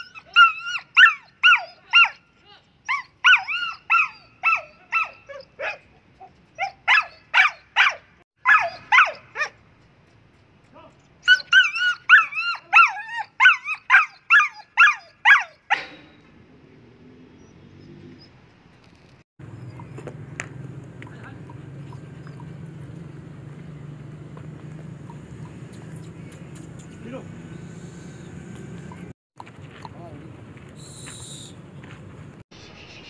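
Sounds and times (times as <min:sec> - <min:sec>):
dog yelping barks: 0:00.0 - 0:09.6, 0:11.2 - 0:16.0, 0:19.5 - 0:20.1, 0:21.4 - 0:22.7.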